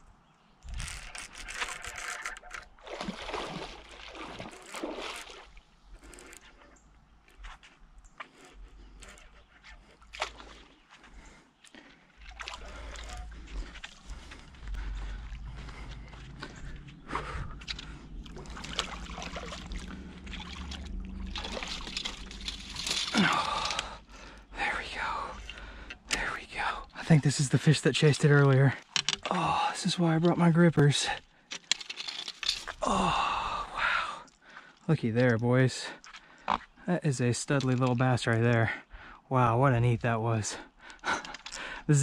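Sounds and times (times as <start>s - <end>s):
water splashing and sloshing: 1.2s - 33.0s.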